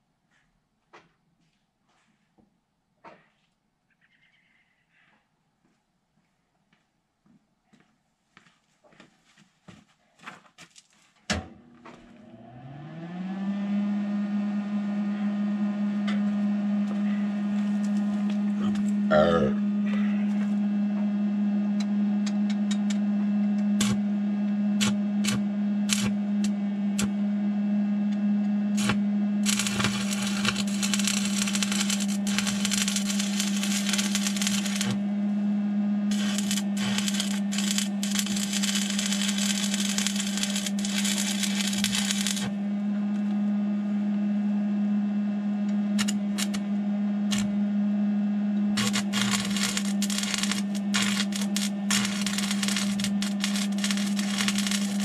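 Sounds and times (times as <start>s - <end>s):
steady low hum: 13.8s - 55.0s
crackling arc welding: 16.9s - 19.0s, 23.8s - 24.0s, 24.8s - 27.1s, 28.8s - 35.0s, 36.1s - 42.6s, 46.0s - 46.6s, 47.3s - 47.5s, 48.8s - 55.0s.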